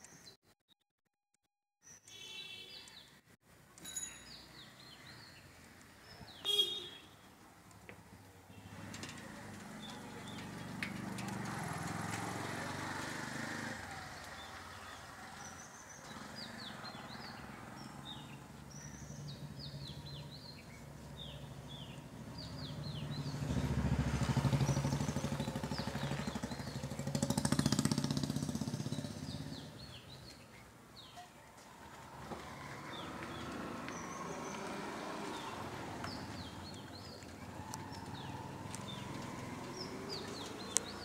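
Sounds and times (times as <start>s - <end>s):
small birds chirping: 1.8s - 3.3s, 4.0s - 31.7s, 32.4s - 41.0s
vehicle engine passing: 8.6s - 30.2s, 31.7s - 41.0s.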